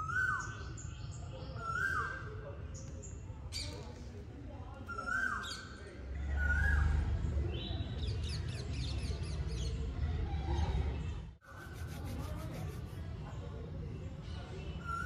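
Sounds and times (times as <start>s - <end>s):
birds chirping and whistling: 0.0s - 2.3s, 4.9s - 11.2s.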